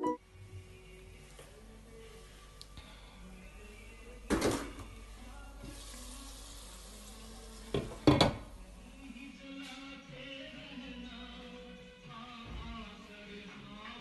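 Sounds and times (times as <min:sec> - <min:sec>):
hiss of water or steam: 0:05.6 - 0:07.9.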